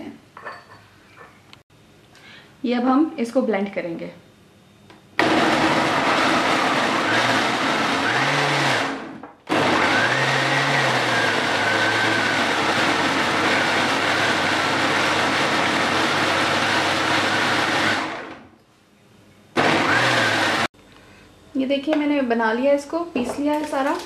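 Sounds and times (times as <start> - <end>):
blender motor whine: 5.2 - 18.4, 19.6 - 20.7.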